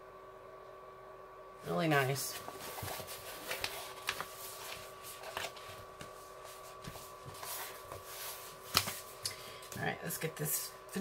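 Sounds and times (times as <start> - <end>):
plastic film crackling and rustling: 2.4 - 9.2.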